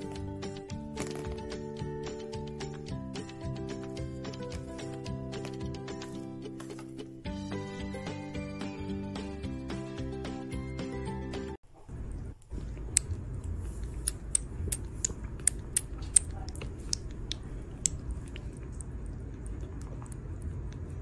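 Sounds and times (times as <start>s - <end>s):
kitten suckling from bottle: 12.6s - 20.9s.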